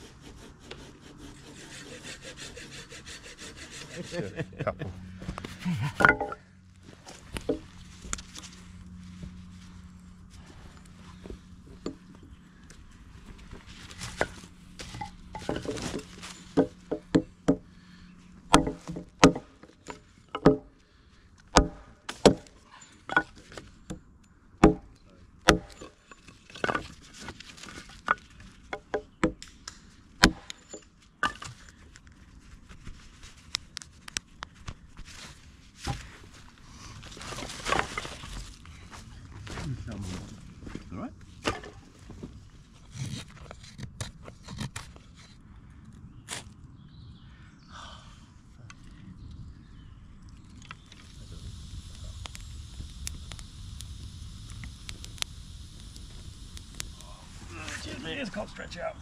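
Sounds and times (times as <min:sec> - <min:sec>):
hatchet chopping firewood: 0:05.6 - 0:06.4, 0:14.0 - 0:17.7, 0:18.4 - 0:20.8, 0:21.4 - 0:27.0, 0:27.9 - 0:31.7, 0:41.4 - 0:41.9
wood pieces clattering: 0:05.9 - 0:06.4, 0:25.5 - 0:29.0.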